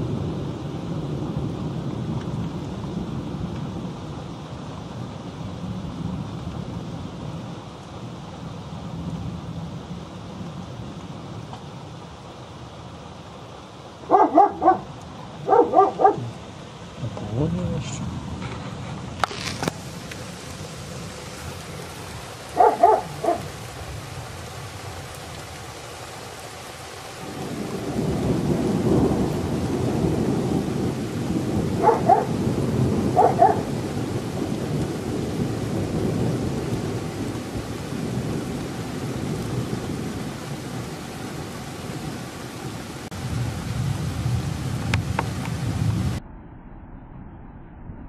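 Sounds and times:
steady rain: 0.0s - 46.2s
dog barking: 14.1s - 16.3s, 22.5s - 23.5s, 31.8s - 32.4s, 33.1s - 33.7s
rumble of thunder: 27.2s - 42.2s, 43.1s - 48.0s.

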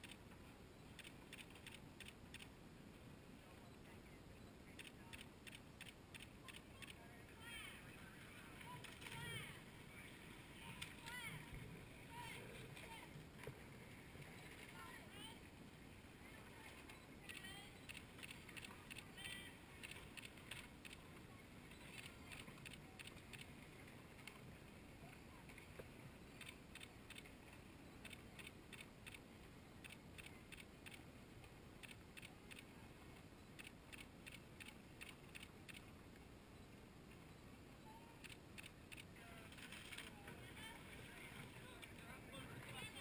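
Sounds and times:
clusters of quick ticks: 0.9s - 2.5s, 4.8s - 7.0s, 16.9s - 21.0s, 21.7s - 23.6s, 26.4s - 29.2s, 29.8s - 31.0s, 31.8s - 32.7s, 33.6s - 35.9s, 38.2s - 40.2s.

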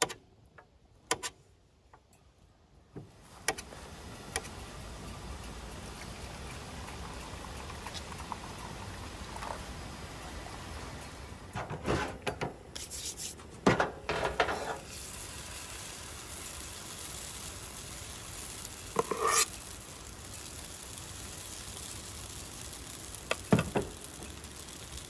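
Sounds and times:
oil sizzling in a pan: 3.2s - 11.4s, 14.3s - 25.0s
ladle scraping and clinking: 14.1s - 15.0s, 18.9s - 19.6s.

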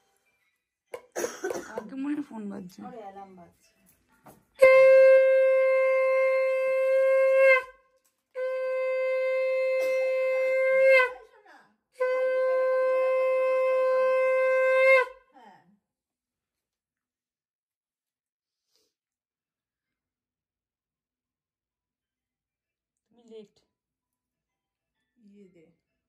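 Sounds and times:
conch shell blasts: 4.6s - 7.8s, 8.4s - 11.2s
breaths: 18.5s - 19.0s.

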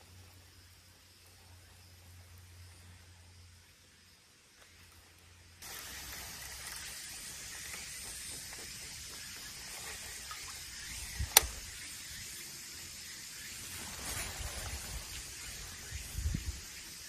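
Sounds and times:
steady outdoor hiss: 0.0s - 17.0s
sharp loud click: 11.2s - 11.7s.

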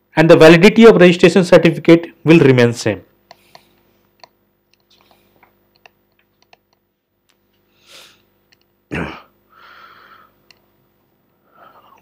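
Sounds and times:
faint scattered clicks: 3.2s - 7.5s, 10.4s - 10.7s.

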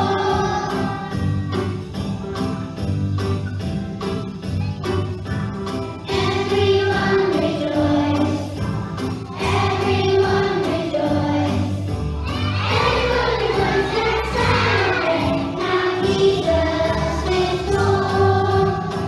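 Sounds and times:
choir singing: 0.0s - 1.1s, 6.1s - 8.5s, 9.4s - 11.7s, 12.6s - 19.0s
backing music: 0.0s - 19.0s.

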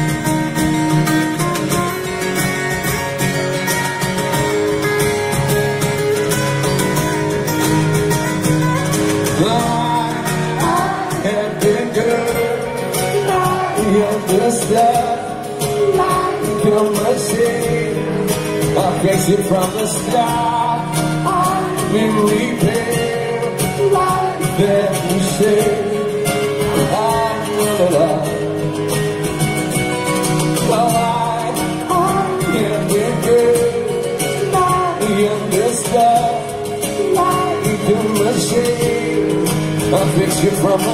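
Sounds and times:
acoustic guitars strumming: 0.0s - 40.9s
person singing: 9.2s - 28.6s, 30.5s - 40.9s.

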